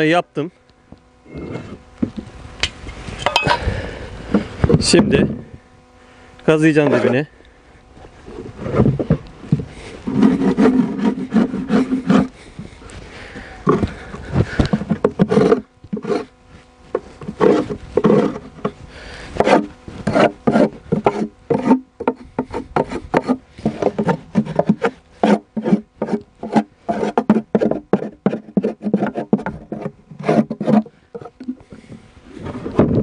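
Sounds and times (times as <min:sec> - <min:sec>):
metal tool scraping wooden box: 0:08.3 - 0:12.3, 0:14.7 - 0:18.8, 0:19.4 - 0:32.8.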